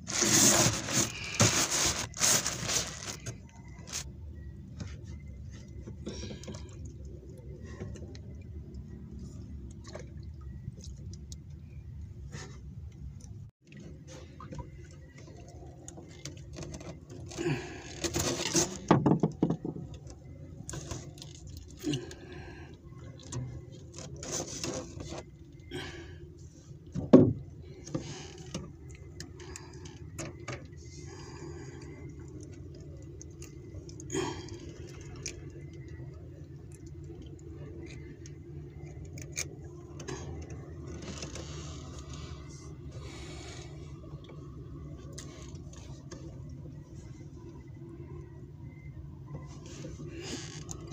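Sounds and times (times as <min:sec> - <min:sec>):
fishing net rustling: 0:00.0 - 0:04.1
steady low hum: 0:00.0 - 0:50.9
clicks and knocks in wooden boat: 0:13.6 - 0:21.9, 0:26.9 - 0:30.8.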